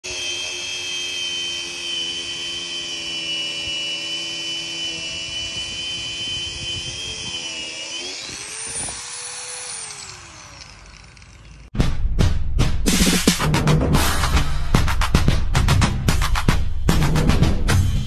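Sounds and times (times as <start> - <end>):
angle grinder grinding wood: 0.0 - 11.8.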